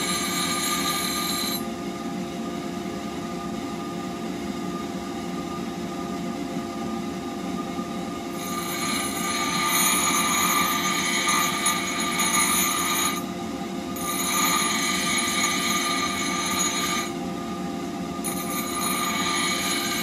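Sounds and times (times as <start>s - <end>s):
bench grinder motor hum: 0.0s - 1.6s, 8.4s - 13.2s, 14.0s - 17.1s, 18.2s - 20.0s
blade grinding hiss: 0.0s - 1.6s, 8.4s - 13.3s, 14.0s - 17.1s, 18.4s - 20.0s.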